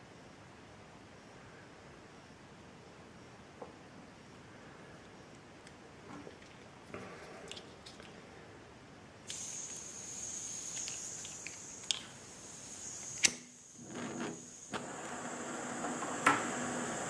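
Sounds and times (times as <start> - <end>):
gas torch hissing: 9.3 - 17.0
lighter clicks: 12.9 - 13.5.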